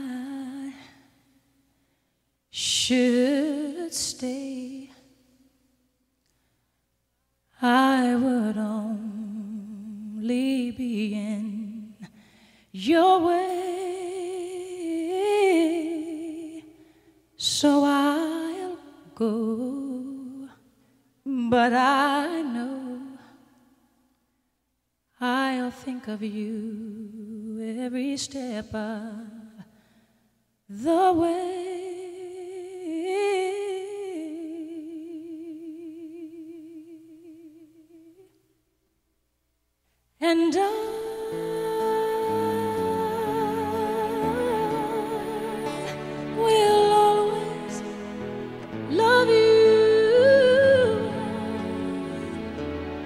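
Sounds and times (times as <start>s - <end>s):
person singing with vibrato: 0.0s - 1.2s, 2.5s - 5.4s, 7.5s - 23.5s, 40.2s - 53.0s
person singing wordless held notes: 40.4s - 52.6s.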